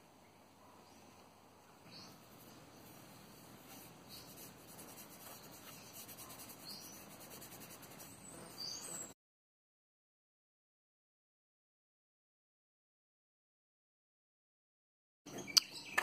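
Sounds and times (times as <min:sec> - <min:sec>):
birds chirping: 0:00.1 - 0:09.2, 0:15.3 - 0:16.0
fingers rubbing metal: 0:02.4 - 0:09.1.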